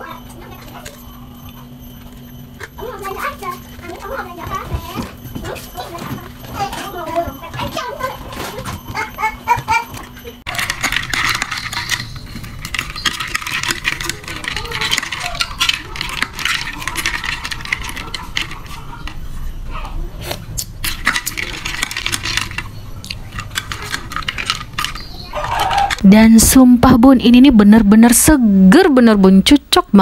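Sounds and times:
spoon stirring ice cubes: 0.1 - 19.5, 20.3 - 26.7.

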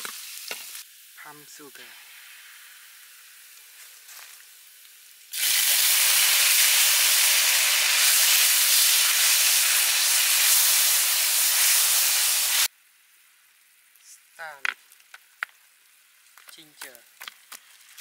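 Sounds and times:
sizzling in hot oil: 0.0 - 14.2.

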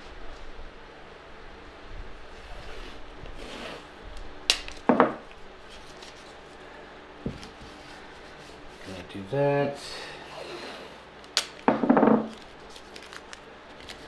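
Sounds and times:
hands rubbing materials: 7.3 - 9.1.

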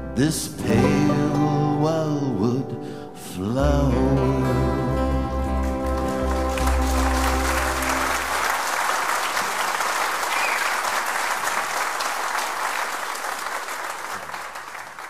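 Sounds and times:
audience applause: 5.6 - 15.0.

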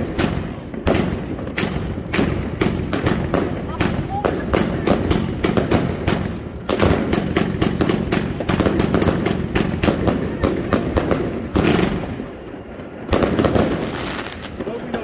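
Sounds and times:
firecracker bangs: 0.0 - 15.0.

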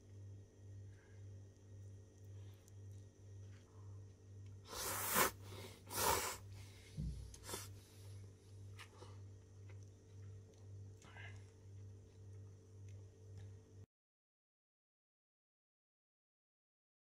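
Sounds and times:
low hum: 0.0 - 4.7
person slurping noodles: 4.7 - 6.5.

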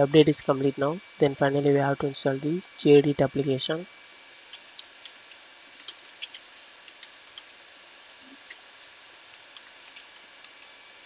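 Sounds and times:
keyboard key clicks: 5.0 - 7.4.

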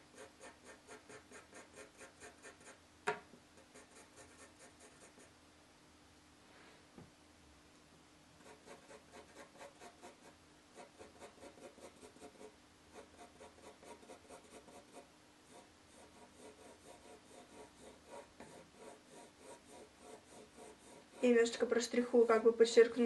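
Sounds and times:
pencil scratching on paper: 0.0 - 2.8, 3.6 - 5.3, 8.4 - 21.7.

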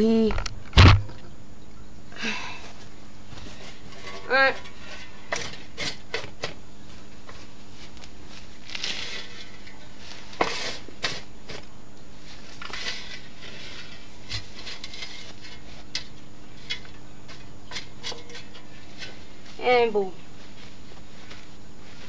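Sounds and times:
shovel scraping soil: 3.4 - 6.6, 7.4 - 19.6.

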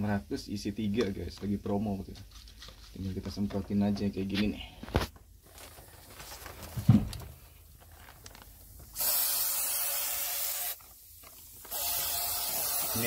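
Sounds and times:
spray can hissing: 8.9 - 13.0.

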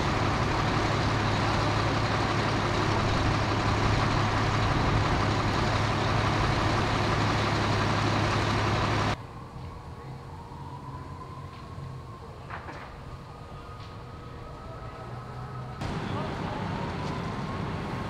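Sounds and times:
diesel engine running: 0.0 - 9.2, 15.1 - 18.0.

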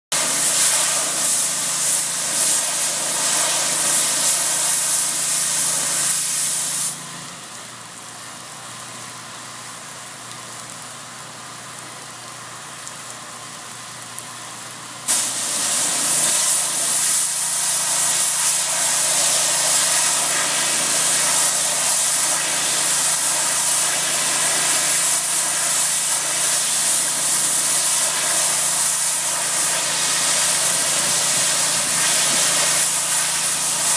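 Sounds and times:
pressure washer spray hissing: 0.1 - 7.1, 15.1 - 33.9.

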